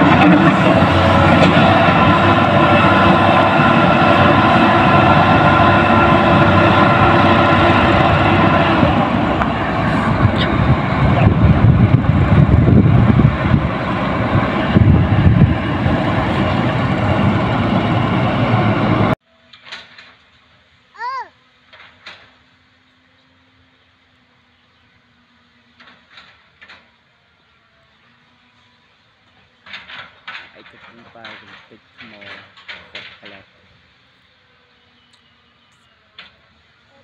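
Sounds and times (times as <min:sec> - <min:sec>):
excavator diesel engine running: 0:00.0 - 0:19.2.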